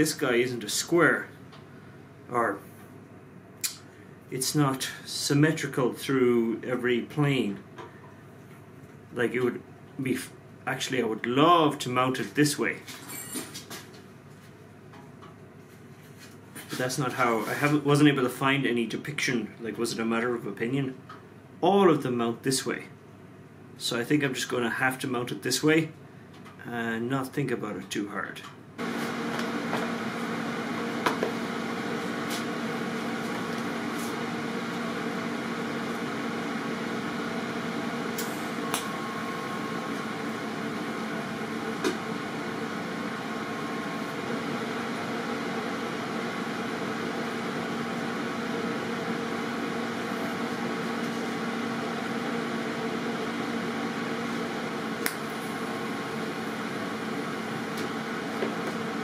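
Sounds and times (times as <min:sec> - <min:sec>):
welding electrical hum: 0:28.8 - 0:59.0.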